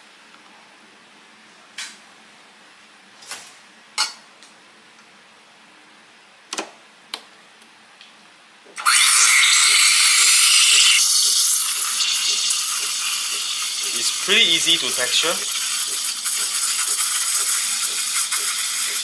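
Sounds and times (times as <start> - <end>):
steam wand hissing: 8.9 - 19.0.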